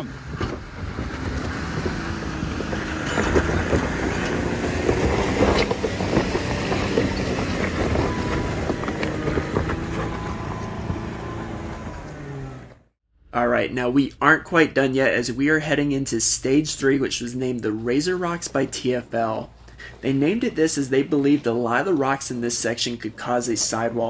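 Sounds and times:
engine running under load: 0.0s - 12.9s
tyres crunching over rock: 0.3s - 12.6s.

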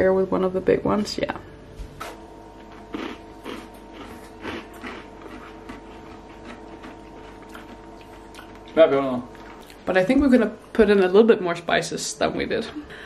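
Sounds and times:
faint steady hum: 0.0s - 13.0s
cookie crunching when chewed: 2.0s - 9.9s.

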